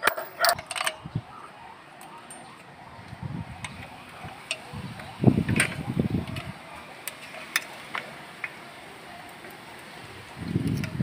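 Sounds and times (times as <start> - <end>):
handling noise: 0.0 - 1.0.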